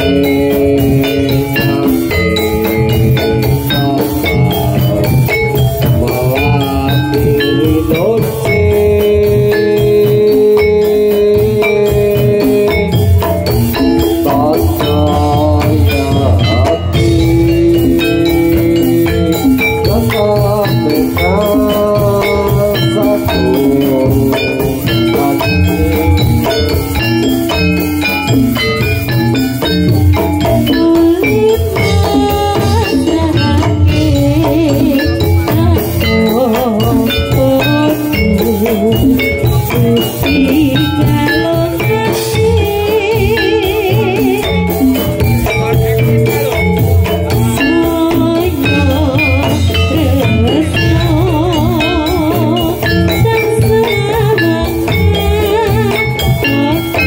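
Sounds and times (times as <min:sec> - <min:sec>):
drums: 0:00.0 - 0:57.0
gamelan music: 0:00.0 - 0:57.0
struck metal-keyed instruments: 0:00.0 - 0:57.0.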